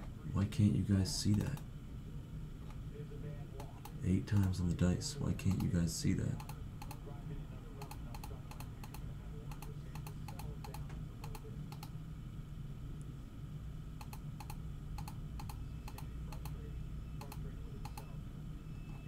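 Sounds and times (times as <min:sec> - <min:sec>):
low hum: 0:00.0 - 0:19.0
computer keyboard typing: 0:06.4 - 0:07.0, 0:07.8 - 0:11.9, 0:14.0 - 0:16.6.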